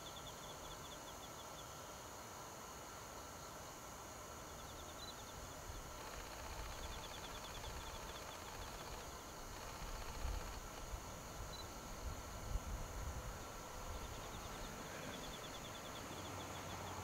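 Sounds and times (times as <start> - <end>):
faint rapid high-pitched trilling: 4.4 - 12.4, 13.3 - 17.0
wind gusts: 7.5 - 17.0
wind rumble on microphone: 9.8 - 14.6.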